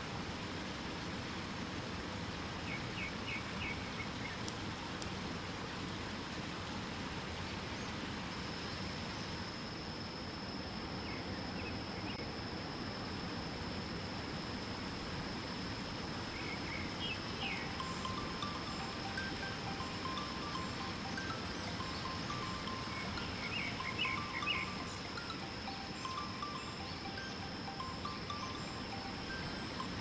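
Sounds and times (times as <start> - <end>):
high insect-like tone: 8.3 - 30.0
bird chirps: 16.4 - 30.0
soft chime-like musical notes: 16.9 - 30.0
waterfall rushing: 17.7 - 29.7.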